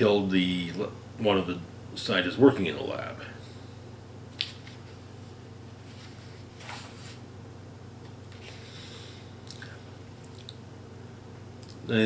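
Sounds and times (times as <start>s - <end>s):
low room hum: 0.0s - 12.0s
book pages rustling: 4.4s - 5.0s, 5.8s - 7.2s.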